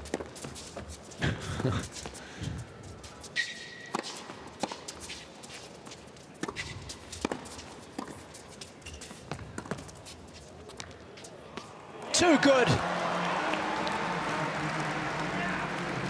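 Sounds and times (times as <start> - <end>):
shoe squeak on court: 3.3 - 5.3, 6.4 - 10.5
racket hitting tennis ball: 6.4 - 8.3.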